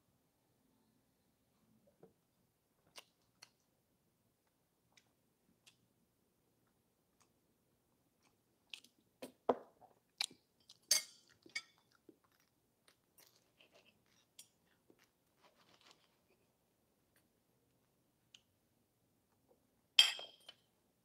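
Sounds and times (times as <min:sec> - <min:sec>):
cutlery knocks and clinks: 0:10.9 - 0:11.8, 0:20.0 - 0:20.6.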